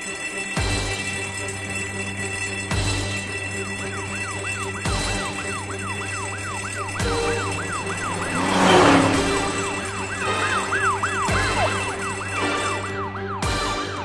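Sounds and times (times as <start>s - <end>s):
cartoon fire truck siren yelping: 3.6s - 14.0s
truck whooshing past: 6.2s - 12.0s.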